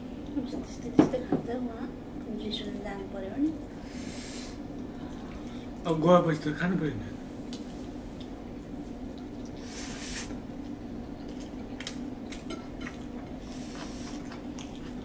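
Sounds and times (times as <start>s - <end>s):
steady low hum: 0.0s - 15.0s
chewing: 9.0s - 9.6s, 10.6s - 15.0s.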